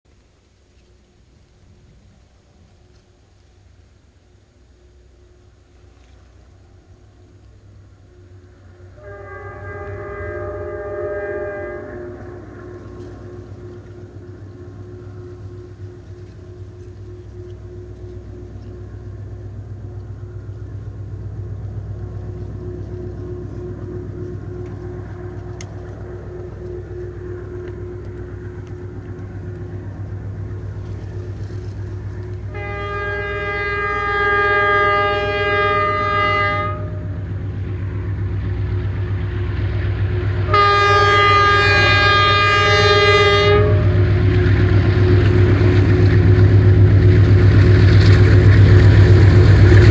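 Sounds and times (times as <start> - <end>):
locomotive engine growl: 0.5 - 49.9
locomotive horn blasts: 8.8 - 18.8, 32.2 - 37.3, 40.4 - 44.6.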